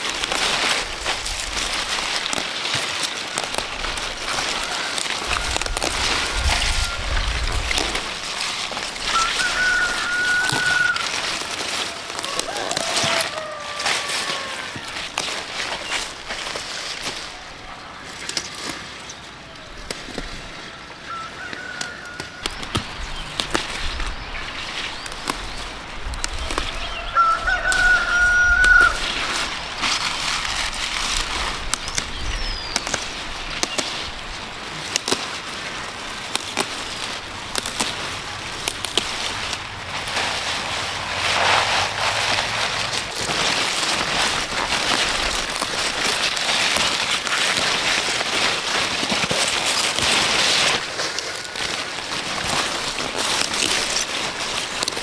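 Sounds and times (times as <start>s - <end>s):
leafy greens rustling: 0.0s - 55.0s
rooster crowing: 4.2s - 7.5s, 9.1s - 15.1s, 20.6s - 22.7s, 26.8s - 29.5s.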